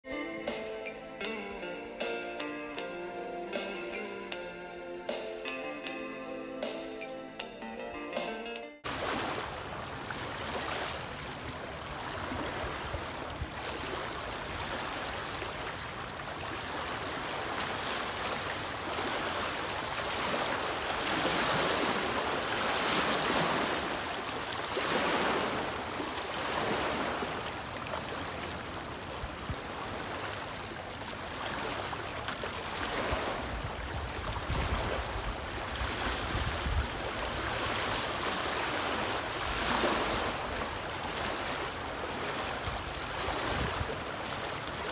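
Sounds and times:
waves lapping on rocky shore: 8.8s - 44.9s
wind rumbling on microphone: 33.0s - 38.2s, 42.7s - 44.2s.

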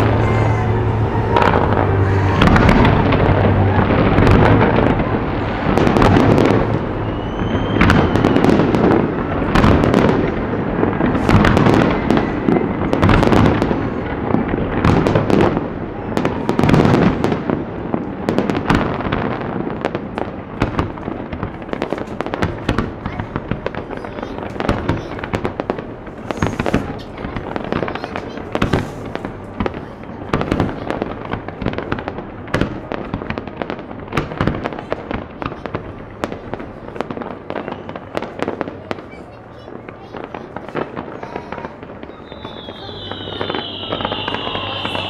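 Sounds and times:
firework whistle: 0.0s - 10.1s, 26.3s - 27.0s, 41.5s - 45.0s
fireworks bursting and crackling: 0.0s - 45.0s.

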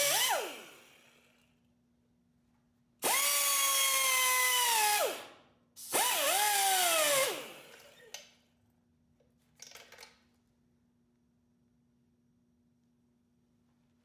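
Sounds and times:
pneumatic tool whining: 0.0s - 1.3s, 3.0s - 8.2s.

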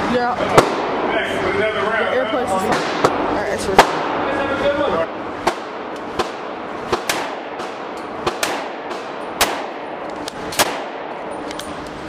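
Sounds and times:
gunshots echoing indoors: 0.5s - 1.2s, 2.6s - 4.4s, 5.1s - 11.5s.

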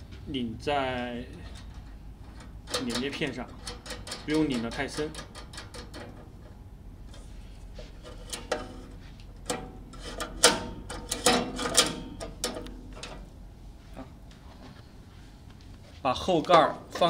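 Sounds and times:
small metal clicks: 1.3s - 6.6s.

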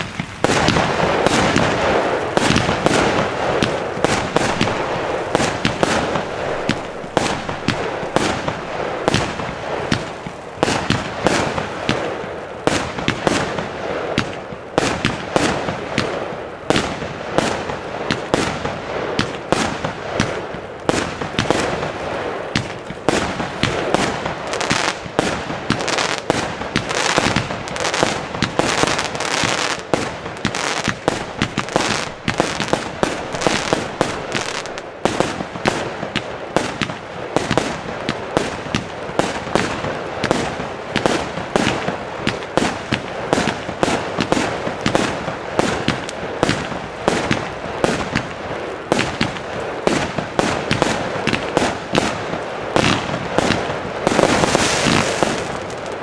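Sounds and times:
fireworks launching and bursting: 0.0s - 56.0s.

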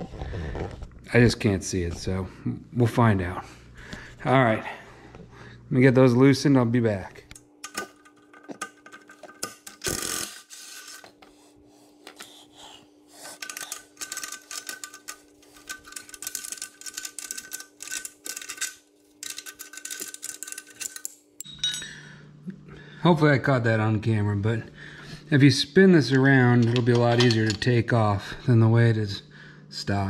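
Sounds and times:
faint steady hum: 0.0s - 30.0s
hand ratchet clicking: 7.6s - 11.0s, 13.2s - 21.2s.

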